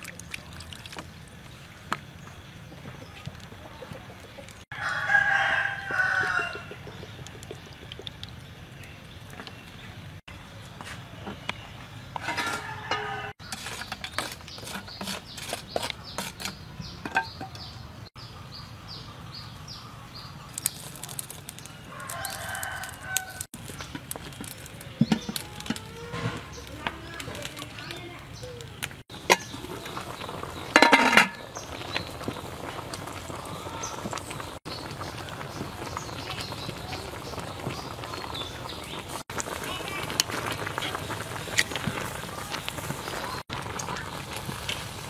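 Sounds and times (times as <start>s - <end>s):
rooster crowing: 4.7s - 6.7s, 12.4s - 13.4s, 21.9s - 23.5s.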